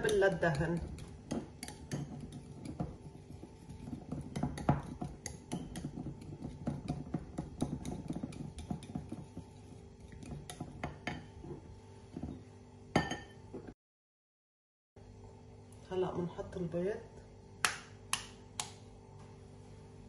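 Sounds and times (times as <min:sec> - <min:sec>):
whisk clicking against ceramic bowl: 0:00.0 - 0:11.2.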